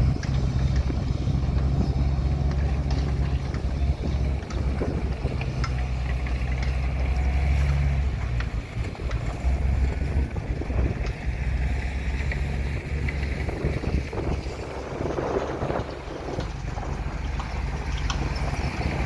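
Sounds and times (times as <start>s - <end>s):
diesel machinery rumbling: 0.0s - 19.0s
wind on microphone: 3.6s - 5.9s, 8.8s - 11.5s, 12.4s - 19.0s.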